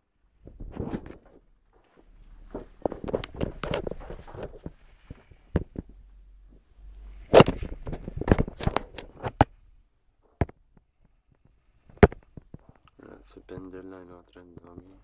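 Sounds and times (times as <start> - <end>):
phone microphone handling noise: 0.4 - 9.6, 10.2 - 13.8.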